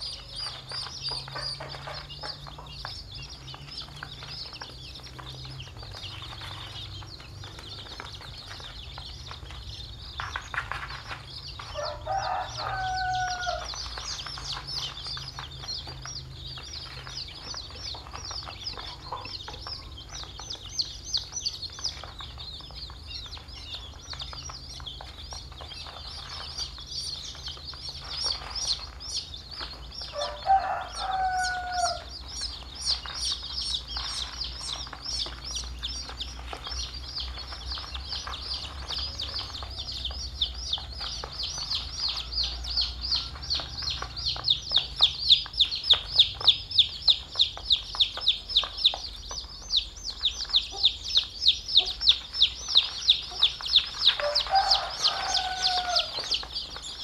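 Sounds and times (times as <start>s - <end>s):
chicks peeping: 0.0s - 57.0s.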